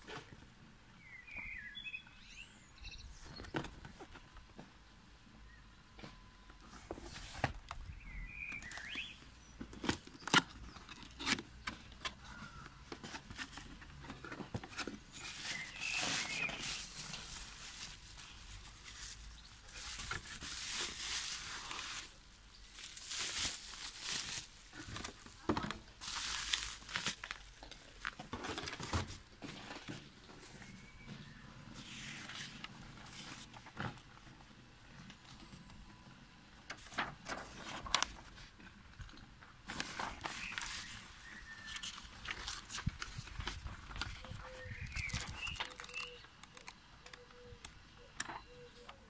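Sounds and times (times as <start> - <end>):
cardboard box rustling: 9.7 - 30.8, 39.7 - 46.2
bubble wrap crinkling: 14.8 - 29.2, 39.7 - 46.8
sharp crackles: 44.7 - 47.2.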